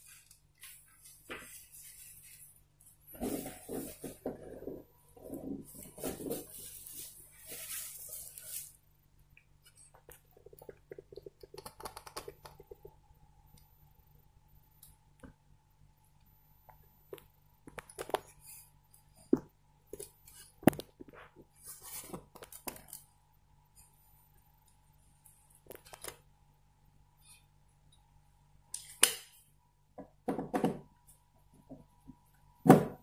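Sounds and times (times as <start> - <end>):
plastic rustling: 0.0 - 8.8.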